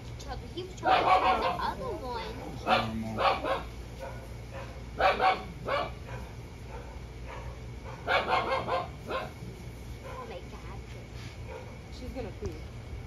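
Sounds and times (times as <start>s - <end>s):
puppy barking: 0.8s - 9.4s, 11.5s - 11.8s.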